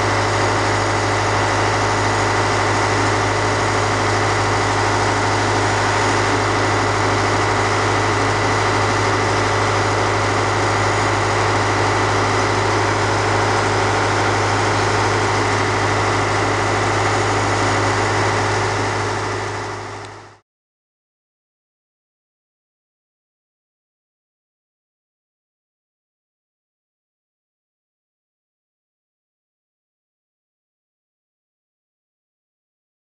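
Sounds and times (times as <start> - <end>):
heavy diesel engine idling: 0.0 - 20.4.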